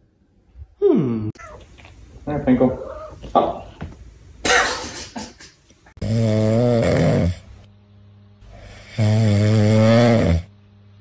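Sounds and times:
dog snoring: 6.0s - 7.5s, 8.5s - 10.5s.

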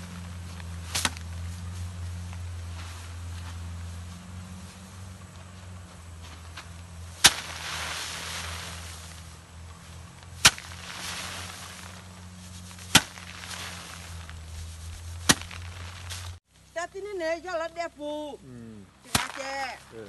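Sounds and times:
sheaves smacking wooden board: 0.0s - 1.6s, 6.2s - 16.4s, 19.1s - 19.8s
rustling hiss of straw: 0.0s - 16.8s.

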